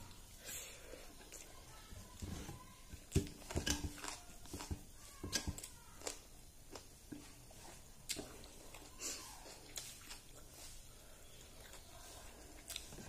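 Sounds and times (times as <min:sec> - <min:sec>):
chewing: 0:03.0 - 0:13.0.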